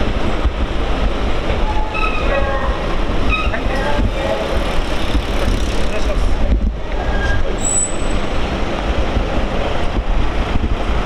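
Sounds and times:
train rumbling on tracks: 0.0s - 11.0s
high wheel squeals: 1.6s - 3.8s, 7.0s - 8.3s.

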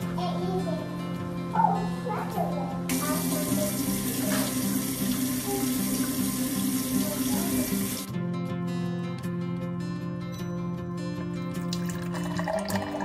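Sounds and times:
background music: 0.0s - 13.0s
running water: 2.9s - 8.1s, 11.6s - 13.0s.

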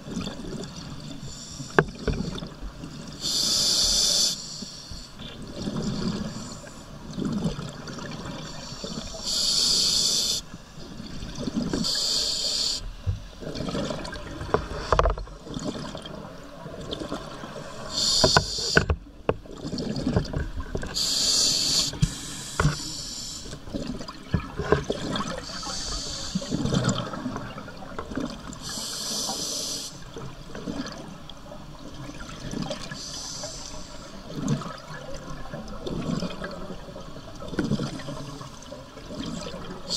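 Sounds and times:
diver inhaling through regulator: 3.2s - 5.1s, 8.5s - 10.5s, 11.8s - 12.9s, 17.8s - 18.9s, 21.0s - 23.6s, 25.4s - 26.8s, 28.6s - 30.0s, 32.9s - 34.0s.

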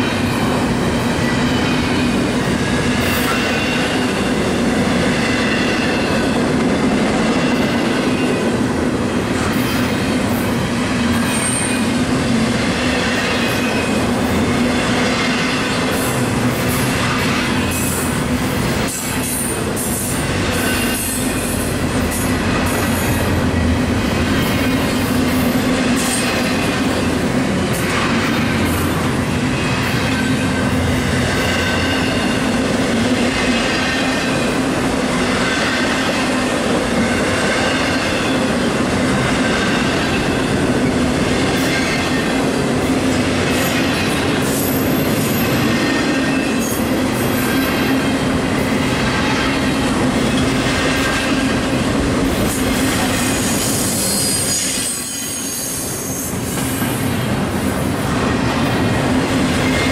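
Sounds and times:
freight train rolling past: 0.0s - 59.9s
train wheels clicking: 0.0s - 59.9s
train wheels squealing: 11.1s - 11.9s, 18.8s - 23.2s, 43.5s - 47.9s, 52.5s - 57.0s.

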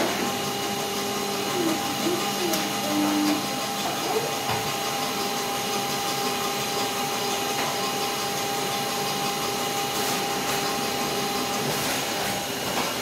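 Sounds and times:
machine whirring: 0.0s - 13.0s
motors whining: 0.1s - 8.4s.

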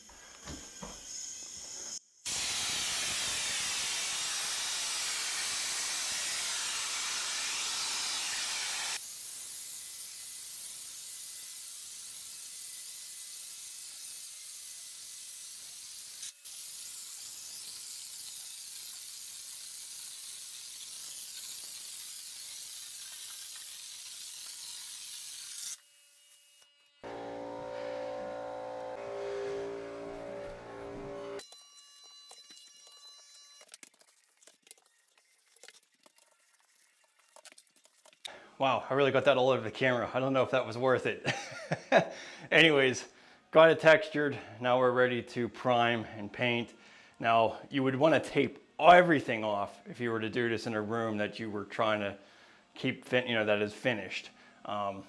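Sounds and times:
texture gun spraying: 1.0s - 25.9s.

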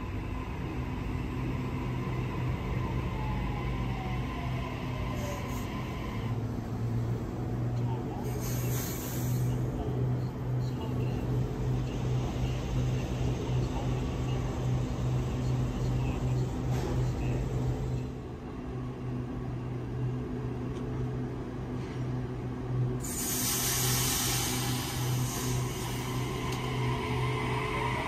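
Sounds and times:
electric train humming: 0.0s - 7.7s, 9.8s - 28.0s
pneumatic air hiss: 8.4s - 9.5s, 23.0s - 26.6s.

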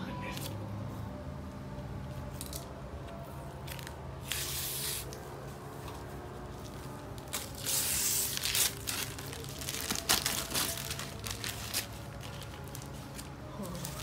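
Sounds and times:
wrapping paper ripping: 7.1s - 14.0s.

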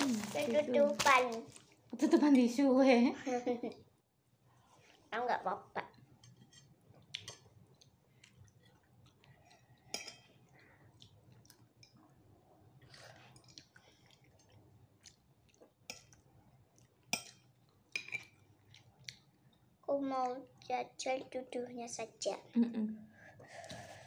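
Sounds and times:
faint chewing and mouth sounds: 0.0s - 2.0s, 4.4s - 21.4s.

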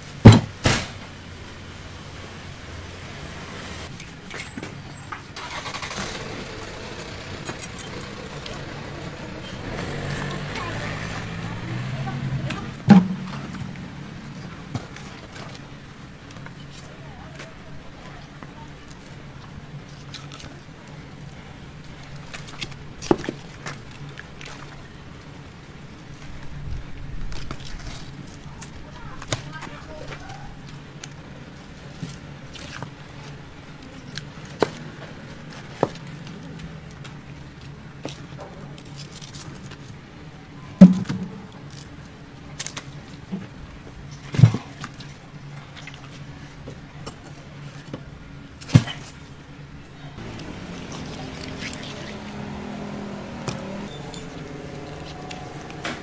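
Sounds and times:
heavy thuds: 12.8s - 15.1s.

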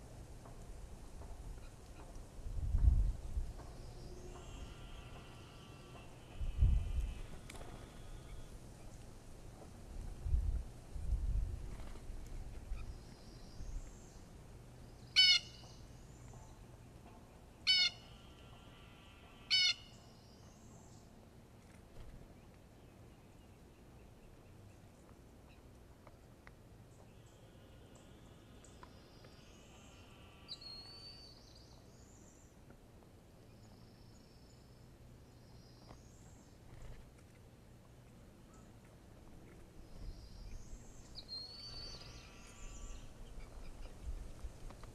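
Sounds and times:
steady low hum: 0.0s - 30.6s
bird calls and chirps: 3.6s - 9.0s, 11.7s - 21.1s, 26.9s - 32.6s, 39.5s - 44.4s
harsh jay calls: 15.2s - 15.7s, 17.7s - 18.2s, 19.5s - 20.0s.

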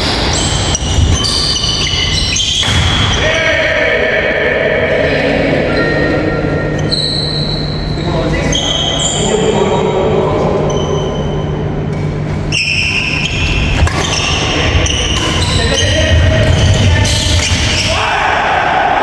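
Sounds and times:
sneakers squeaking on court: 0.0s - 3.2s, 5.7s - 9.4s, 10.6s - 17.9s.

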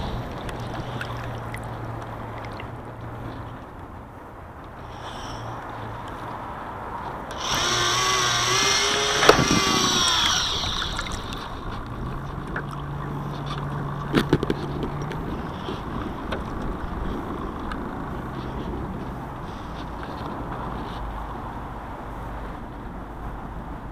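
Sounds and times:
water sloshing against hull: 0.0s - 4.0s, 4.6s - 21.3s
servo motor whining: 4.9s - 5.4s, 7.3s - 11.8s.

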